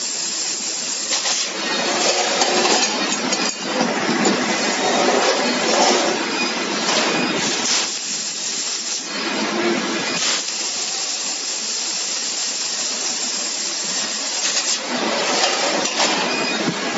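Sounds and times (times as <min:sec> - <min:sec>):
hiss of laser cutter assist gas: 0:00.0 - 0:01.6, 0:06.8 - 0:09.1, 0:10.0 - 0:14.8.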